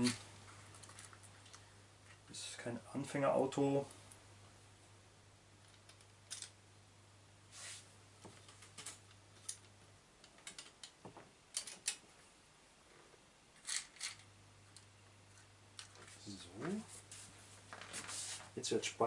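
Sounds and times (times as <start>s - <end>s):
small metal parts clinking: 6.2s - 6.6s, 13.6s - 14.3s.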